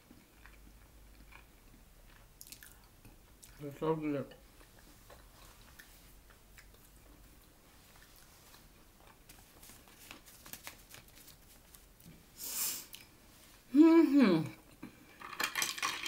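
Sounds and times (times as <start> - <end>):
chewing with wet mouth clicks: 0.1 - 3.6, 4.6 - 8.3
short breathy hiss: 12.4 - 12.9.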